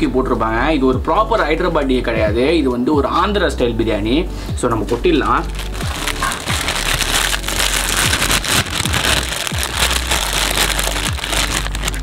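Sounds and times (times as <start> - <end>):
background music: 0.0 - 12.0
plastic bag crinkling: 5.2 - 12.0.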